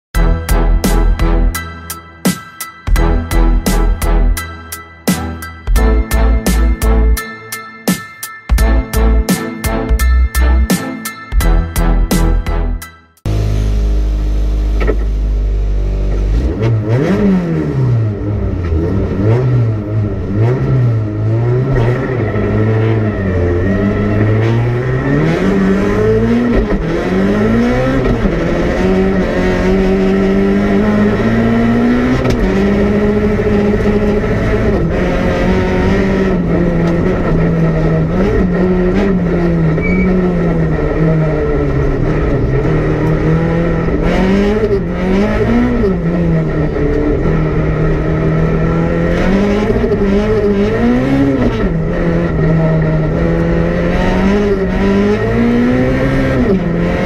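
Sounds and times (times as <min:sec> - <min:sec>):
rally car engine revving: 0:13.3 - 0:57.0.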